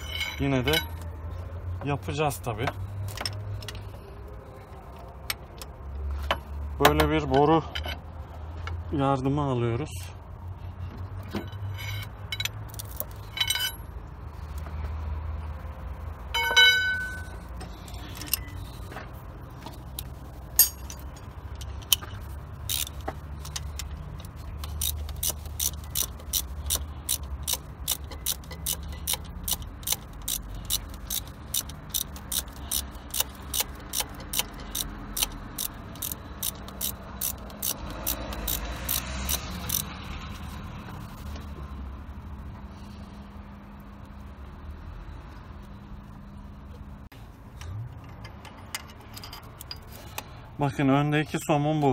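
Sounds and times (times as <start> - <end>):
ratchet wrench clicking: 11.6 - 13.8, 19.8 - 41.4, 47.6 - 50.3
metallic tool clinks: 13.2 - 13.9, 16.4 - 18.6, 20.6 - 21.2.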